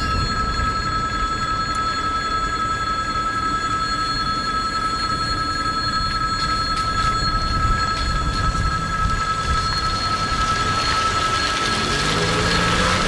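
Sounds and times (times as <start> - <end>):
level crossing warning bell: 0.0 - 13.0.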